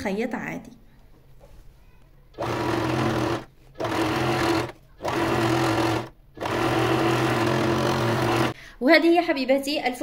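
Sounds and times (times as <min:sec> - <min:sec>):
sewing machine stitching: 0:02.4 - 0:08.6.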